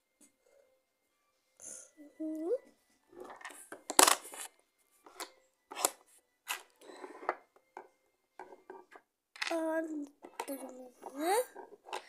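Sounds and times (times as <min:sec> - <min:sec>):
small objects rustling and clicking: 0:03.1 - 0:07.4, 0:10.2 - 0:12.0.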